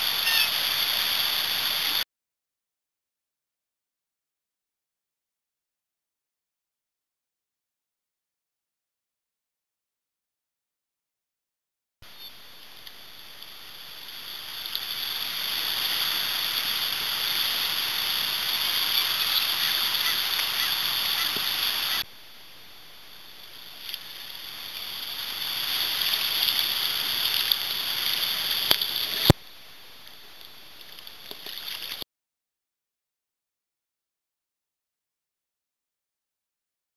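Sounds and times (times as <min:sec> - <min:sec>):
river current rushing: 0:00.0 - 0:02.0, 0:12.4 - 0:22.0, 0:23.5 - 0:29.3.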